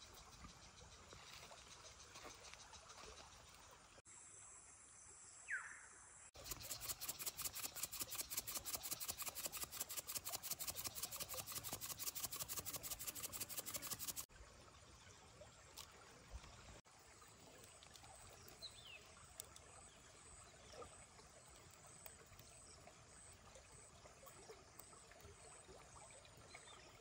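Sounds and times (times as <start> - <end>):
insects calling in pulsing rhythm: 6.4 - 14.3.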